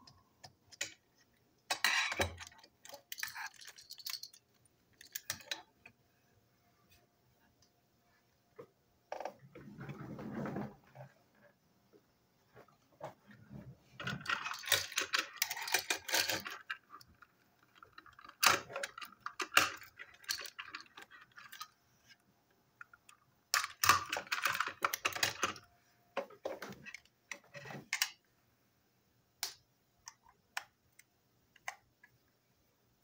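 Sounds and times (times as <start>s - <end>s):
plastic toy parts clicking and rattling: 1.7s - 5.8s, 14.0s - 22.2s, 22.8s - 25.7s, 26.3s - 28.2s.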